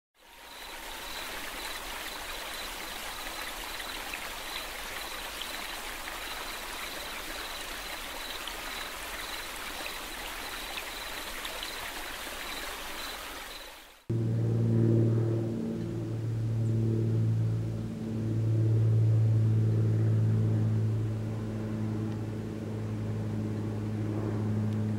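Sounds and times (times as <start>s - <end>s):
stream water rushing: 0.2s - 14.1s
music: 14.1s - 20.6s.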